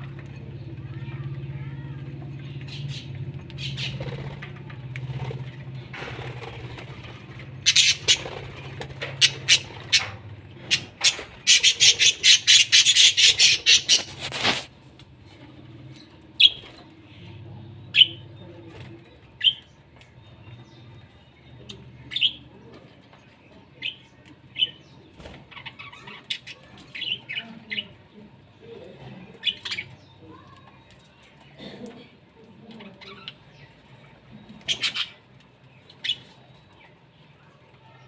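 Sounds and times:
parrots chirping shrilly: 7.6 - 8.4, 9.2 - 14.7.

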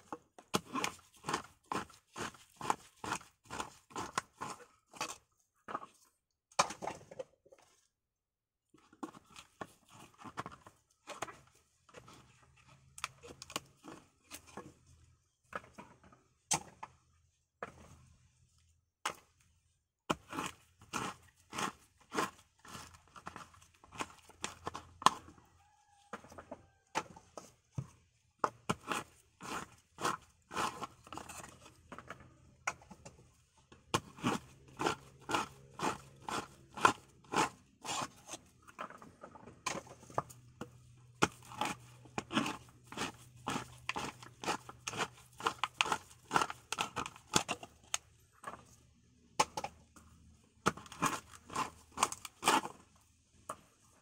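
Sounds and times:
coconut meat scraped from shell: 28.7 - 31.8, 34.0 - 38.6, 41.2 - 47.9, 50.7 - 52.9.

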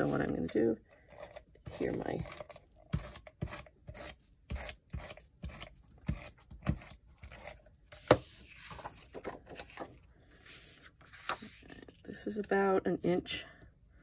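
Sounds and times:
paper rustling and sliding: 7.3 - 12.0.

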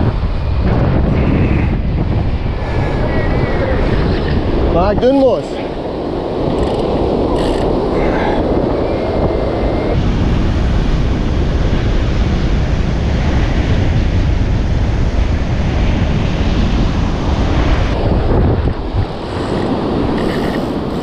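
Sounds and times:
wind buffeting microphone: 0.0 - 21.0
waves breaking on beach: 10.0 - 21.0.

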